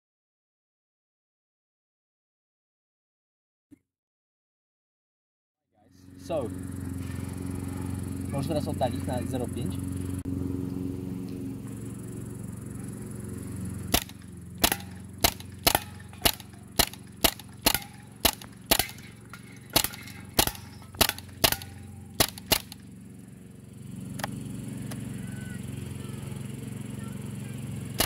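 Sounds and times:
low steady hum: 0:05.8 - 0:28.0
air rifle shots popping: 0:13.9 - 0:22.9.

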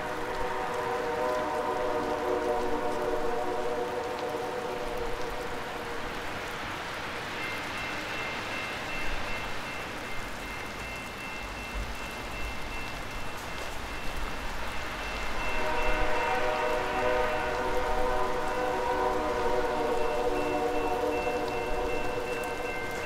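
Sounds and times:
locomotive horn: 0:00.0 - 0:05.6, 0:15.4 - 0:22.0
rain and wet snow falling: 0:00.0 - 0:23.0.

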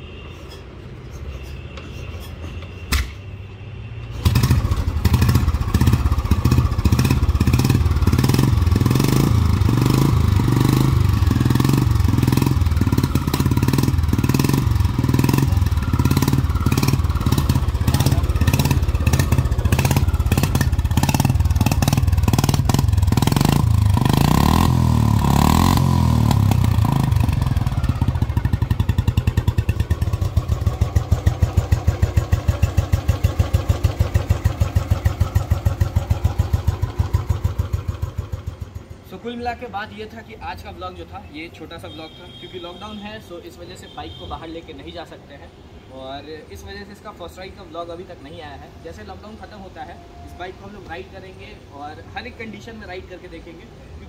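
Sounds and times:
motorcycle engine idling: 0:04.2 - 0:39.7.

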